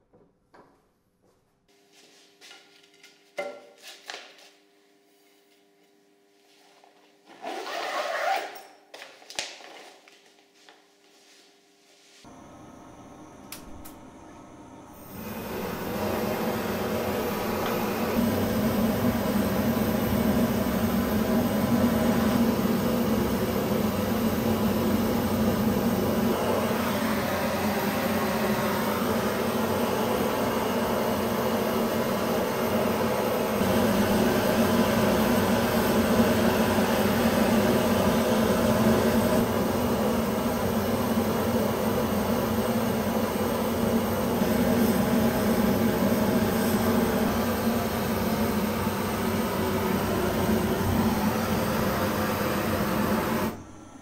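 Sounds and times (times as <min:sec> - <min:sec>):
gas torch flame rushing: 0:15.0 - 0:53.6.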